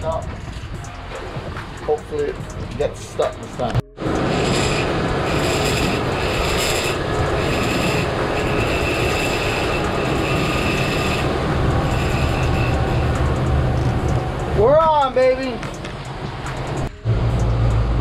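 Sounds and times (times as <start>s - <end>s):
water and wind rushing: 0.0s - 18.0s
outboard motors running: 0.2s - 18.0s
high whine: 3.6s - 18.0s.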